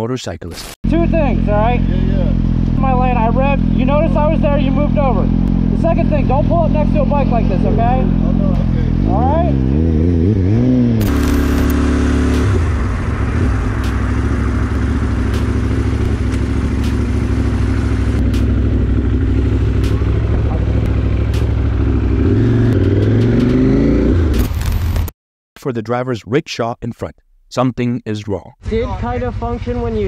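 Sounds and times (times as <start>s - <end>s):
motorcycle engine running: 0.9s - 25.0s, 28.6s - 30.0s
rushing noise: 11.0s - 25.1s.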